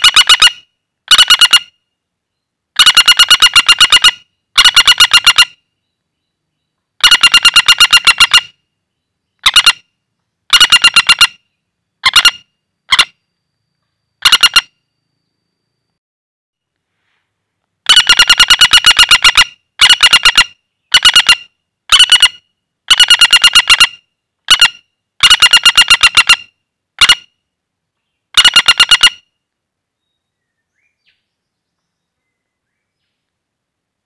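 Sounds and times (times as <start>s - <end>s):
woodpecker rattling trills: 0.0s - 1.8s, 2.8s - 5.7s, 7.0s - 8.6s, 9.4s - 9.9s, 10.5s - 13.2s, 14.2s - 15.0s, 17.9s - 27.3s, 28.3s - 29.3s.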